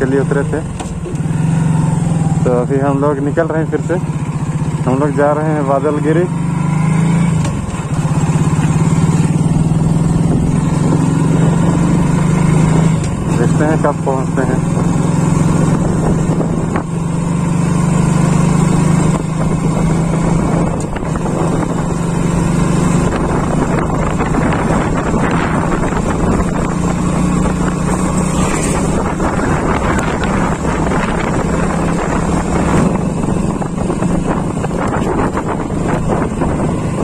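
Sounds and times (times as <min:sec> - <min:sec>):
motorcycle engine running: 0:00.0 - 0:37.0
wind rushing over microphone: 0:07.5 - 0:13.3, 0:14.5 - 0:17.7, 0:18.6 - 0:37.0.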